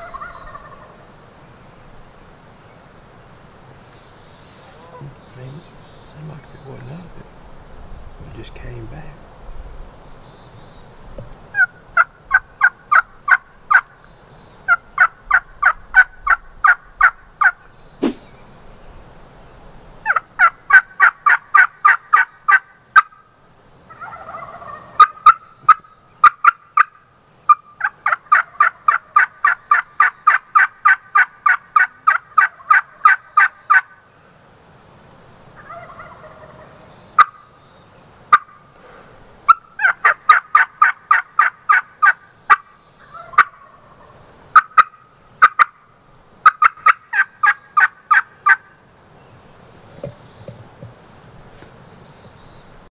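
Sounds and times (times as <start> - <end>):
turkey yelping: 0.0 - 1.0, 11.5 - 14.0, 14.7 - 18.3, 20.0 - 23.2, 23.9 - 34.0, 35.6 - 37.5, 38.3 - 38.6, 39.5 - 45.8, 46.4 - 48.7.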